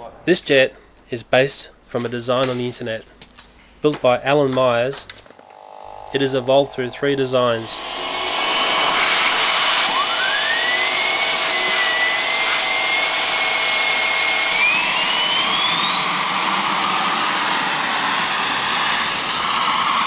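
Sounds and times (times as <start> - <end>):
turbo whine rising: 5.3 - 20.0
gas turbine rushing: 5.6 - 20.0.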